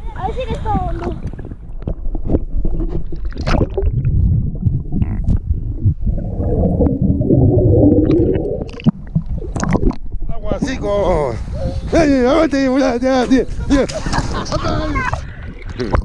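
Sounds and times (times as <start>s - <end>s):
muffled underwater sloshing and bubbling: 0.2s - 10.3s, 14.0s - 16.0s
water splash: 0.9s - 10.3s.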